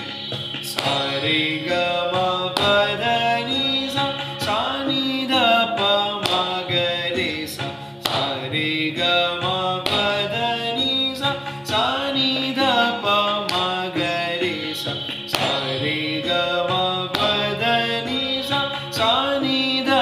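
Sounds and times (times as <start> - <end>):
hand claps: 0.0 - 5.0, 5.8 - 16.4, 17.0 - 20.0
steady drone tone: 0.0 - 8.2
man singing scale syllables: 0.0 - 20.0.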